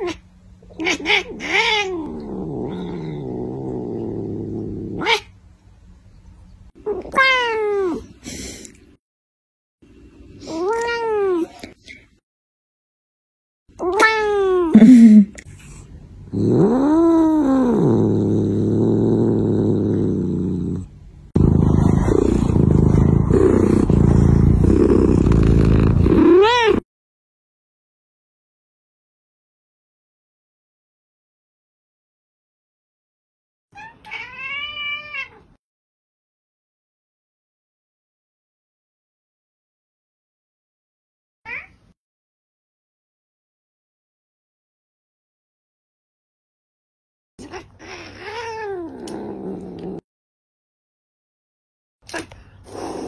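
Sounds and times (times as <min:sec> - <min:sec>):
cat purring loudly: 0:01.2 - 0:05.2, 0:16.3 - 0:26.8, 0:48.7 - 0:50.0
cat meowing: 0:33.8 - 0:35.4.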